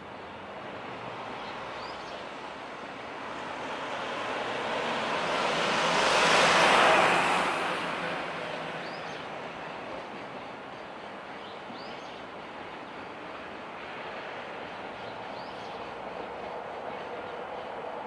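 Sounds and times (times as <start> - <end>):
vehicle passing by: 3.6 - 9.0.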